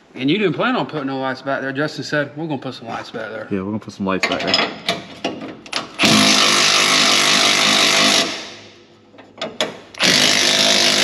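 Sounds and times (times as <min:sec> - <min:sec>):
impact wrench running: 0:05.9 - 0:08.8, 0:10.0 - 0:11.0.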